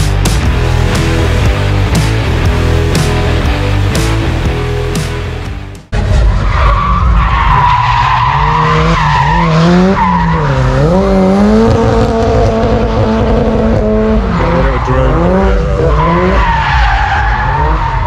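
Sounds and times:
music: 0.0s - 6.0s
car engine at high revs: 5.9s - 18.0s.

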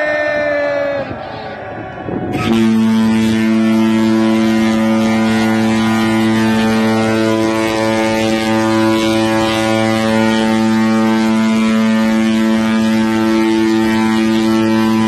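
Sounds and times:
wind on microphone: 0.0s - 4.5s
ship horn long low blast: 1.0s - 15.0s.

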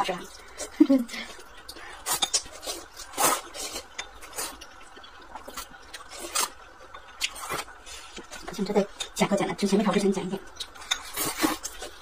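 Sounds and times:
noodles being slurped: 2.0s - 4.8s, 10.9s - 12.0s.

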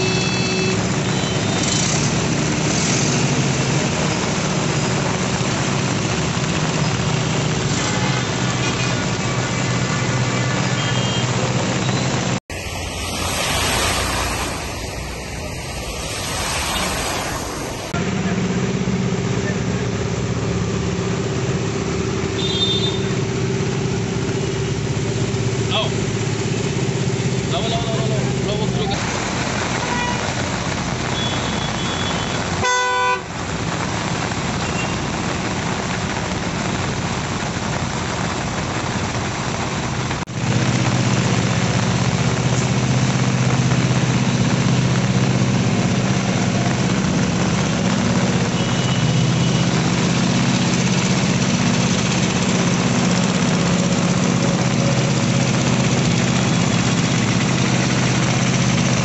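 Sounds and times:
vehicle horn honk: 0.0s - 1.6s, 22.4s - 23.1s, 31.2s - 33.2s
rain and tyres hissing in water: 0.0s - 59.0s
vehicle engines running: 0.0s - 59.0s.

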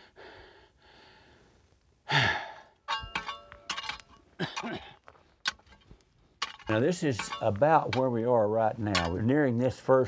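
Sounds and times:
man sighing: 2.0s - 2.8s
hand tool clinking on rocky ground: 2.8s - 9.6s.

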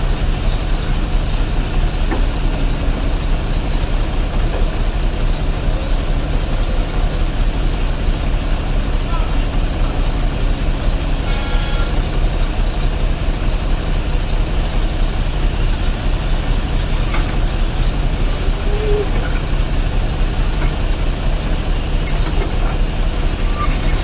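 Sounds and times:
excavator diesel engine rumbling: 0.0s - 24.0s
high squeal: 11.2s - 12.0s, 23.1s - 24.0s.

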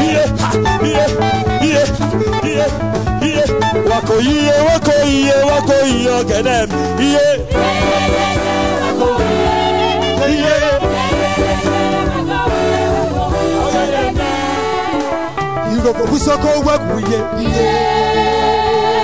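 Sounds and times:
voices singing: 0.0s - 4.2s, 7.0s - 15.6s, 17.0s - 19.0s
band accompaniment: 0.0s - 19.0s.

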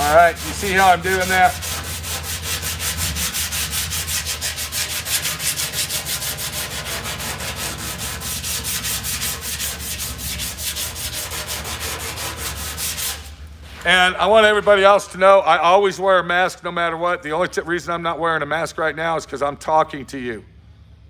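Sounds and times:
sandpaper scratching by hand: 0.0s - 13.9s.

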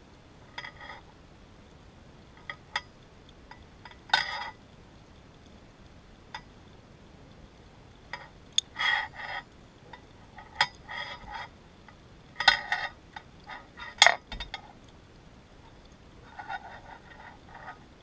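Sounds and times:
underwater metallic clinks and rattles: 12.4s - 14.8s.

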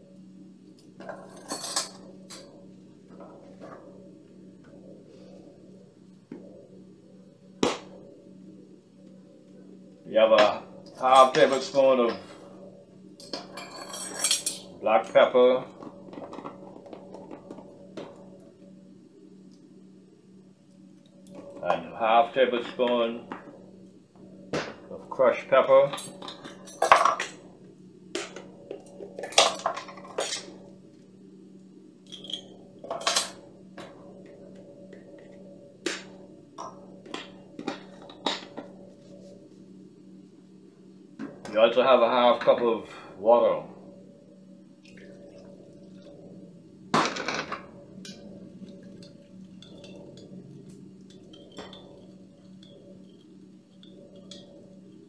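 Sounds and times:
low hum: 0.0s - 55.0s
utensils clinking against glass bowl: 13.2s - 14.6s.

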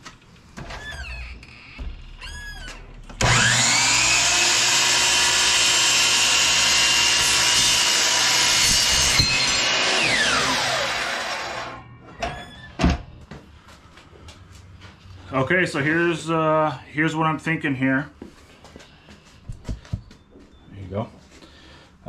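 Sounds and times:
blade cutting aluminum: 3.2s - 11.8s
miter saw whining: 3.2s - 11.8s.

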